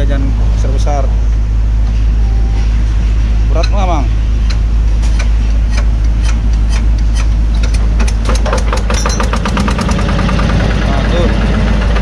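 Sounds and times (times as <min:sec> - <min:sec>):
diesel engine hand-cranked starting: 0:04.4 - 0:12.0.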